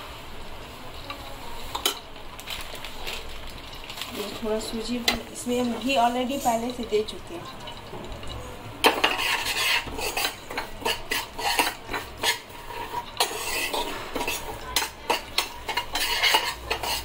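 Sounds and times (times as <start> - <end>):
steel ladle scraping a pan: 5.0 - 17.0.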